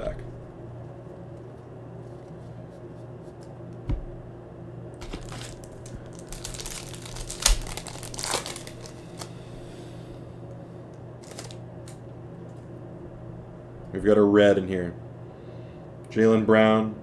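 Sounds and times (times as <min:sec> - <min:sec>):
dull thump: 0:03.8 - 0:04.2
foil wrapper crinkling and tearing: 0:05.0 - 0:09.4, 0:11.2 - 0:12.0.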